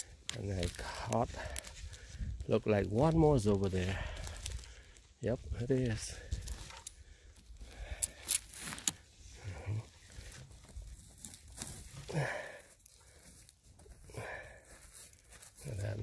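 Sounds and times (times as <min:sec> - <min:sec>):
twigs snapping: 0:00.0 - 0:02.1, 0:03.0 - 0:05.1
hand rustling through dry needles: 0:00.0 - 0:06.9.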